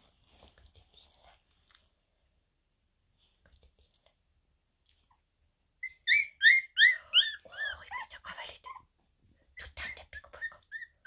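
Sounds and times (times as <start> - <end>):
puppy whimpering squeaks: 5.8 - 8.9, 9.6 - 11.0.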